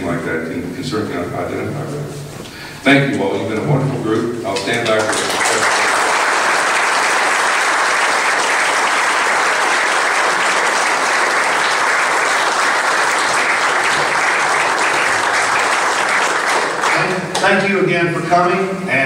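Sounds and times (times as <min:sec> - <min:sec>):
audience applauding: 0:04.5 - 0:17.6.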